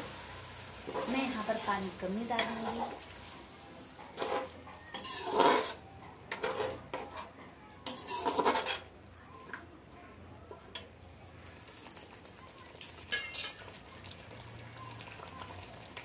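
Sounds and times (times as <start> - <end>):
spoon scraping pan: 0.8 - 3.1, 4.0 - 9.7, 13.0 - 13.8.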